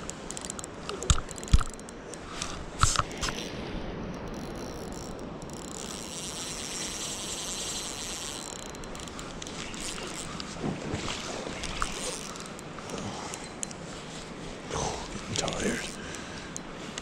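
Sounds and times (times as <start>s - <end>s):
spinning reel buzzing: 4.2s - 10.4s, 11.6s - 13.6s.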